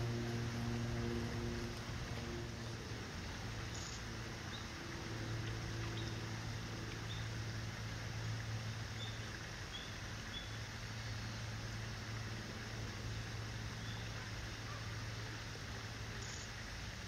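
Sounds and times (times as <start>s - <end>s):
low outdoor ambience hum: 0.0s - 17.0s.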